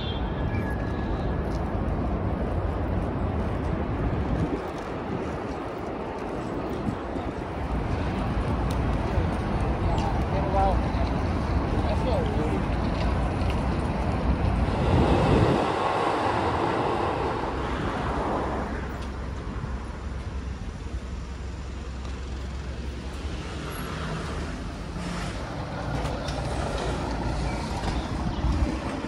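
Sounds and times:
street traffic rumble: 0:00.0 - 0:29.0
vehicle passing: 0:13.2 - 0:19.0.

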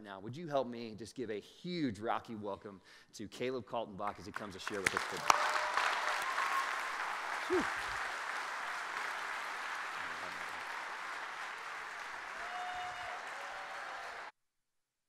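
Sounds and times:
crowd applauding: 0:04.1 - 0:14.3.

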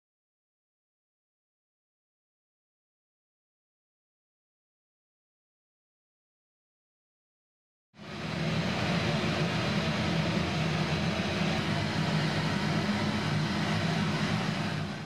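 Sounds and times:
low rumble: 0:08.0 - 0:15.0.

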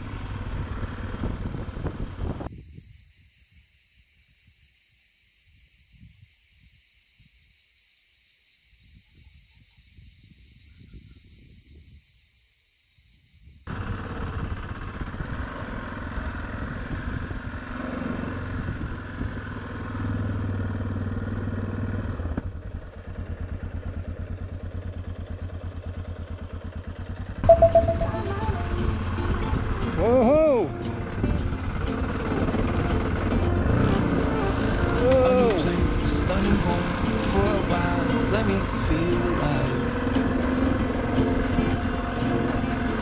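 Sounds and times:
motorcycle engine running: 0:00.0 - 0:02.5, 0:13.7 - 0:43.0.

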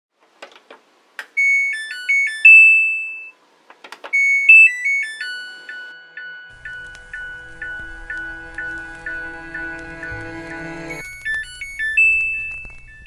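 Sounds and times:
electronic beep melody: 0:04.2 - 0:13.0.

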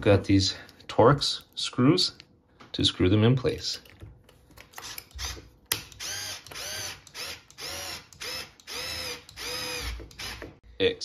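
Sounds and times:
cordless screwdriver motor whine: 0:04.8 - 0:10.5.

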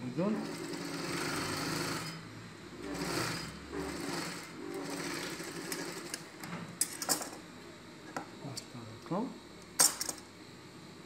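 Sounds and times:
sewing machine stitching: 0:00.3 - 0:02.2, 0:02.8 - 0:06.2.

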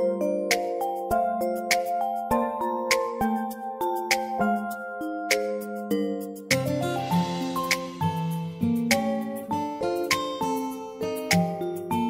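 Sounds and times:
plucked acoustic guitar melody: 0:06.5 - 0:12.0.

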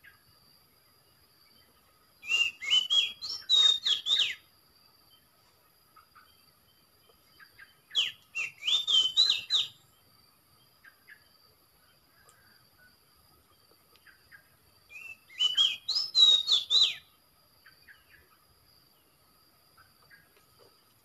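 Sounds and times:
bird whistling song: 0:02.2 - 0:04.5, 0:07.4 - 0:10.0, 0:14.0 - 0:18.4.

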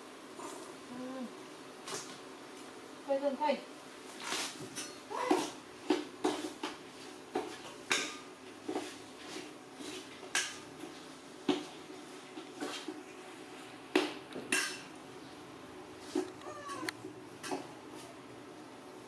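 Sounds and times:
dishes and utensils clinking: 0:14.5 - 0:14.9.

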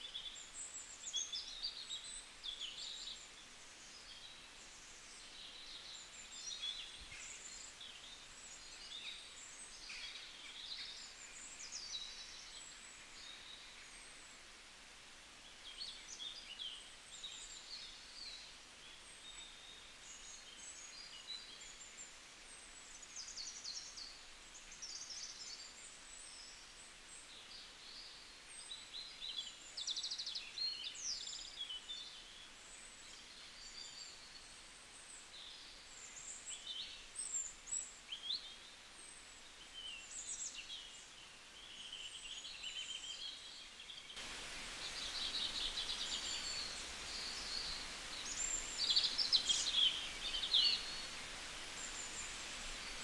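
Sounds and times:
steady background hiss: 0:00.0 - 0:53.0
small birds chirping: 0:15.4 - 0:53.0.

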